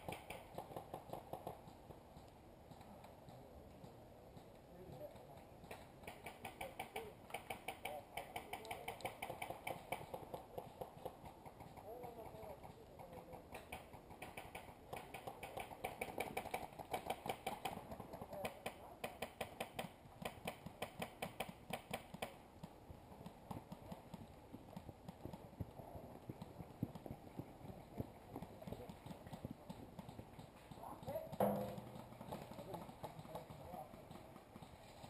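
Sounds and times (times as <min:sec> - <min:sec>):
distant murmur of players: 0:21.6 - 0:35.0.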